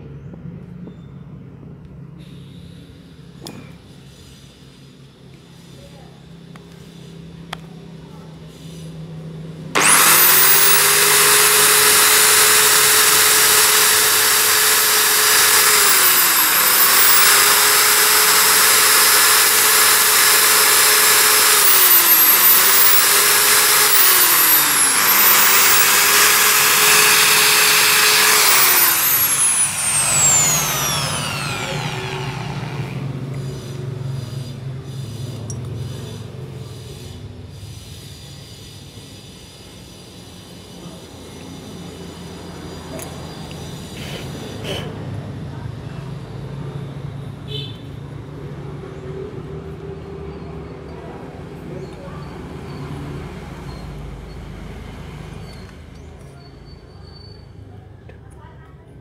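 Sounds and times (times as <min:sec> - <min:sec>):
die grinder whining: 0:09.8 - 0:33.8.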